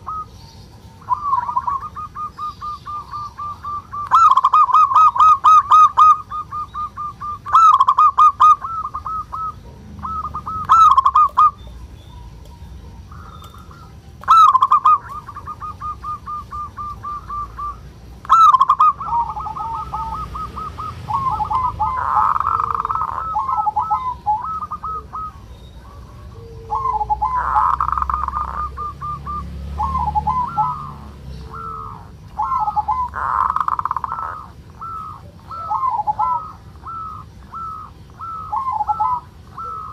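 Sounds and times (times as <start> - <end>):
dove churring calls: 0.0 - 39.9
dove cooing: 0.0 - 39.9.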